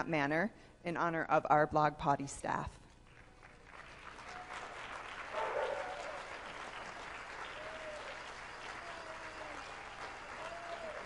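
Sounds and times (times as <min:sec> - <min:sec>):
audience applauding: 0:03.2 - 0:11.0.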